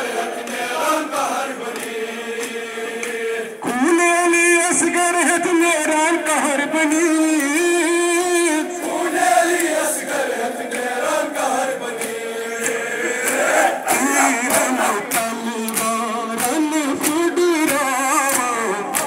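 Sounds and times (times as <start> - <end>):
men chanting a lament: 0.0 - 19.0
chest slapping: 12.0 - 15.9.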